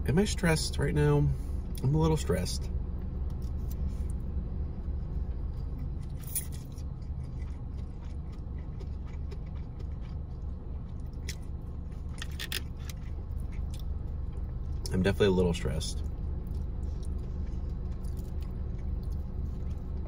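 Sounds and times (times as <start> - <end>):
low rumble inside car: 0.0 - 20.0
chewing noodles: 5.1 - 14.9, 16.0 - 20.0.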